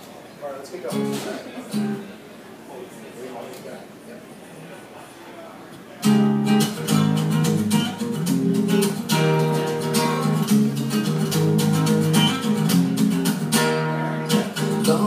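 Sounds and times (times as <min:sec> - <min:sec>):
acoustic guitar strumming: 0:00.9 - 0:02.1, 0:06.0 - 0:15.0.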